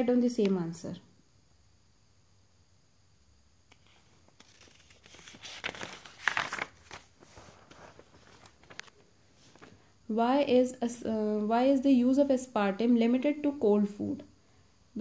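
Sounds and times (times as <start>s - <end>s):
paper page rustling: 3.7s - 9.8s.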